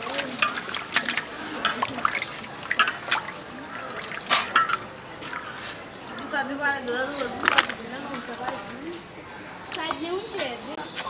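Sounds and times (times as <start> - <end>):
water splashing in a metal bowl: 0.0 - 6.4.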